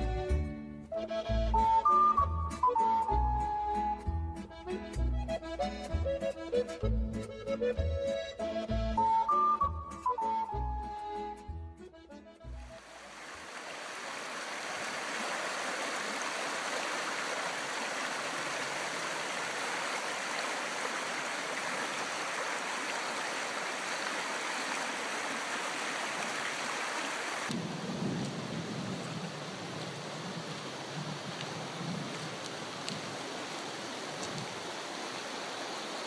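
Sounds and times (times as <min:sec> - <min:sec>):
accordion music: 0:00.0 - 0:12.8
river rushing over stones: 0:12.7 - 0:36.0.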